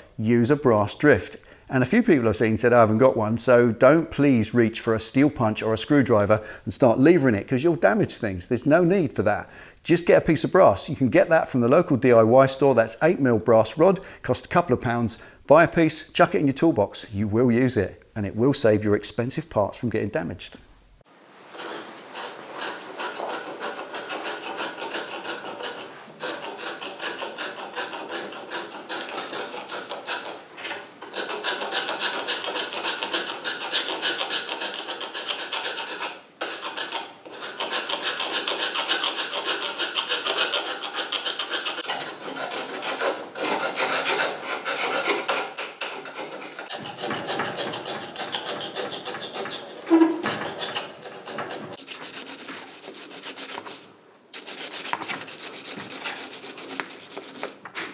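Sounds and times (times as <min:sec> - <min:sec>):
knife scraping paint off metal: 0:21.6 - 0:30.4, 0:31.0 - 0:57.9.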